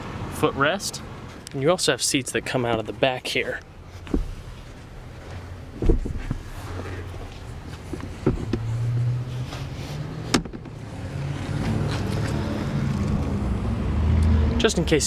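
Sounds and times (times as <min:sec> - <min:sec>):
low steady rumble: 0:01.8 - 0:10.8.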